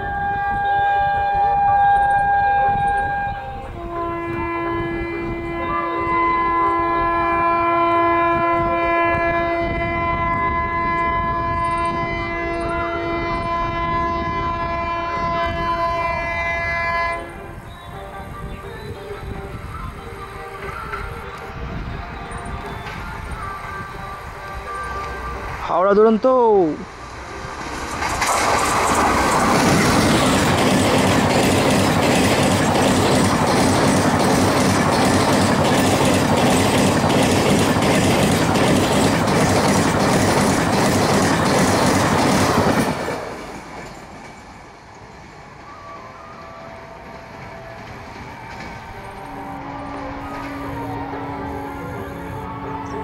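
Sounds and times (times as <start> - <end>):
locomotive horn blast: 0.0 - 17.6, 45.9 - 53.0
train rumbling on track: 0.0 - 53.0
wheels clattering over rail joints: 26.8 - 45.0.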